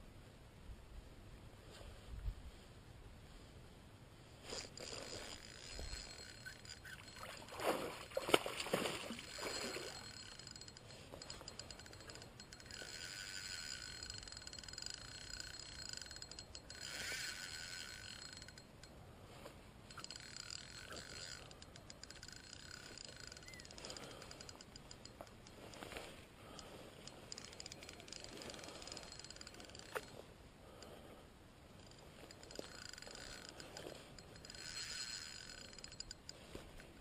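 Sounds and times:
spinning reel whirring and ticking: 4.6s - 7.5s, 9.2s - 18.9s, 19.8s - 30.2s, 31.8s - 36.5s.

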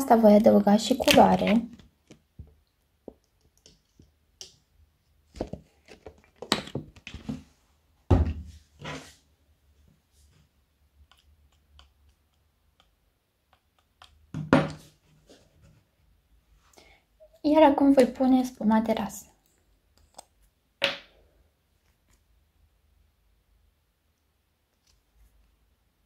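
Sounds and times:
plastic bottle and cup knocks: 14.3s - 14.8s.

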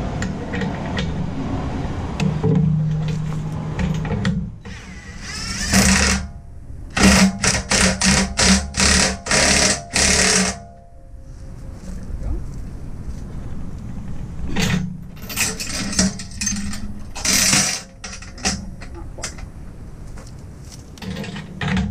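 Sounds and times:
impact driver hammering: 4.2s - 6.3s, 7.0s - 10.7s.

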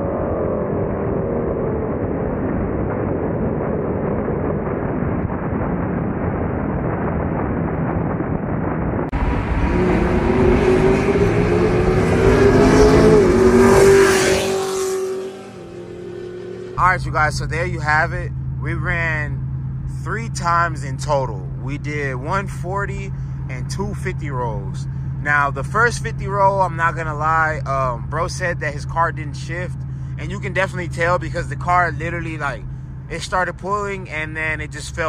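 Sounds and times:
muffled engine and road noise: 0.0s - 35.0s
car accelerating past: 9.2s - 17.2s.

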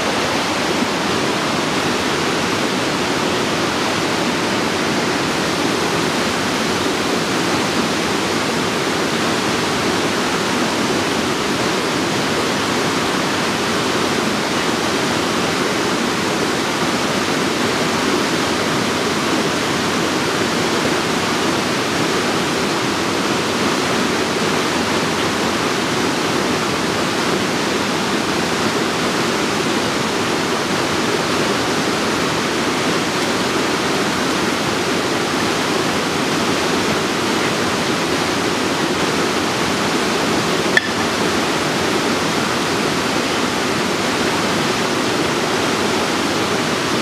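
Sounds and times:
waterfall rushing: 0.0s - 47.0s.

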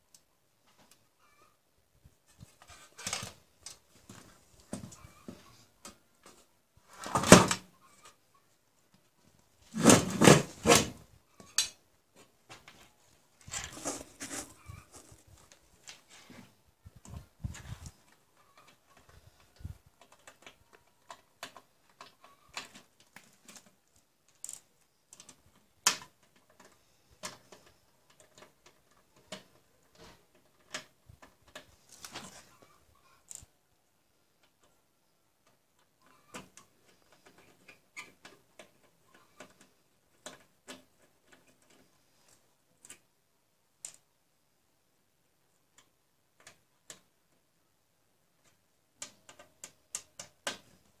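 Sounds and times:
sheet-metal parts handled: 13.4s - 16.4s.

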